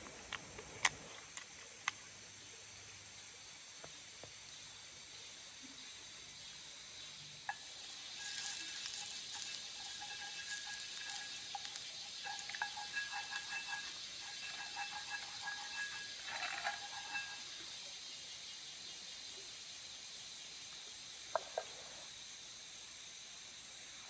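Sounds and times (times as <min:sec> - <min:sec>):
steady hiss: 0:00.0 - 0:24.0
wooden utensil scraping a skillet: 0:07.5 - 0:17.8.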